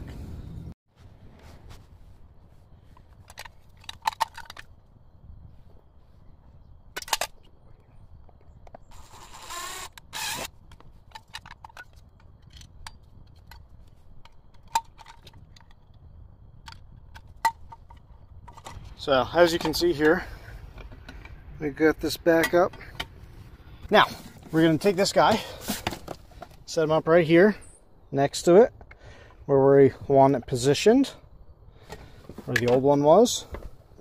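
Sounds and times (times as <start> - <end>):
faint low rumble: 0.0 - 3.8
cordless drill whirring: 9.0 - 10.5.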